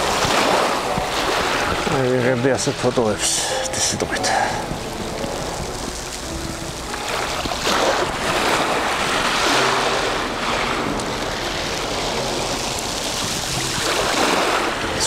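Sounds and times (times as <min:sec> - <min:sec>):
wind on microphone: 0:00.0 - 0:03.0, 0:03.9 - 0:15.0
sea waves washing ashore: 0:00.0 - 0:15.0.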